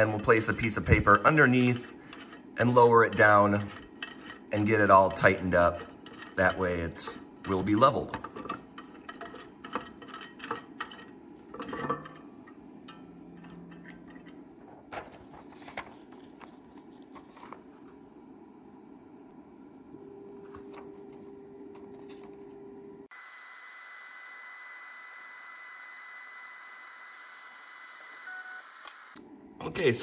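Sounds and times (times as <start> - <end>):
thin high whine: 23.1 - 29.2.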